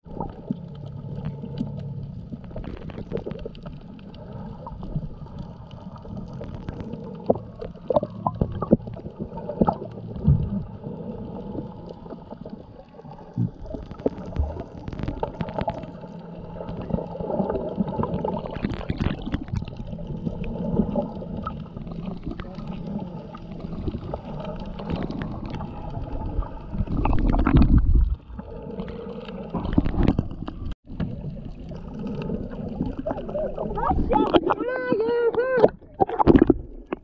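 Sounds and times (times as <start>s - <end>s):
underwater gurgling: 0.0s - 37.0s
sharp clicks and pops: 1.2s - 3.9s, 13.3s - 16.0s, 18.0s - 19.8s, 35.6s - 37.0s.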